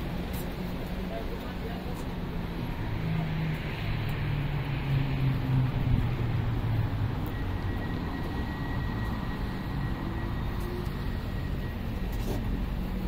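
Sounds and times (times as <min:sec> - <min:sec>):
road traffic hum: 0:00.0 - 0:13.0
faint high whine: 0:06.5 - 0:13.0.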